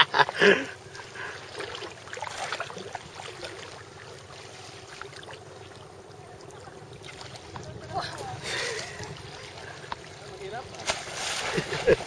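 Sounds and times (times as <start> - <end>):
water gently lapping: 0.0 - 12.0
water sloshing and splashing: 0.0 - 12.0.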